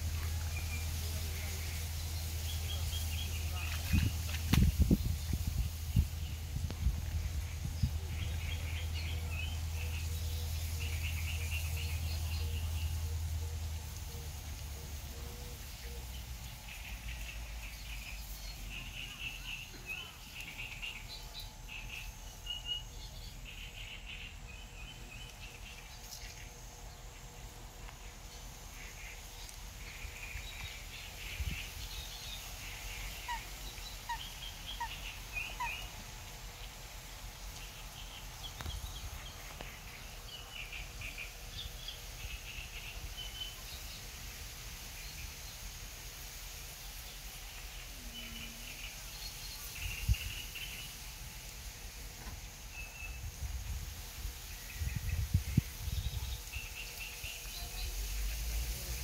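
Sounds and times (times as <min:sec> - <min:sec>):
cygnets peeping: 0:00.0 - 0:45.8, 0:46.7 - 0:59.0.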